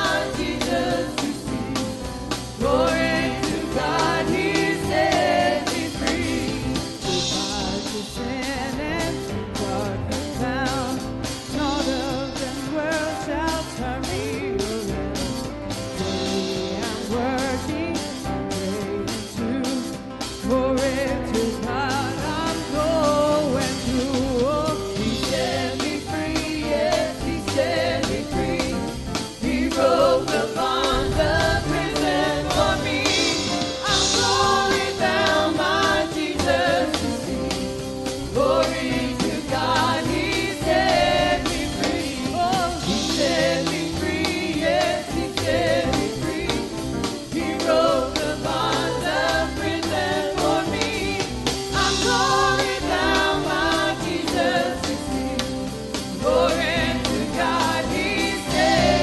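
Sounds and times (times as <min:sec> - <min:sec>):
instrumental backing with beat: 0:00.0 - 0:59.0
singers singing gospel song: 0:00.0 - 0:59.0.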